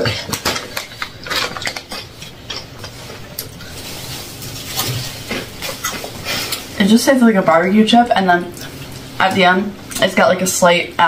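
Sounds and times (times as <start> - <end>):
chips crunching: 0.0 - 6.8.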